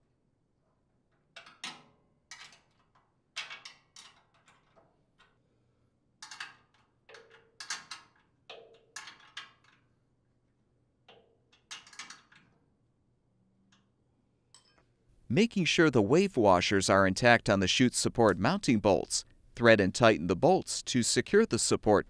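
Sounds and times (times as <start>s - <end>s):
wrench clinking on metal: 14.5s - 14.9s.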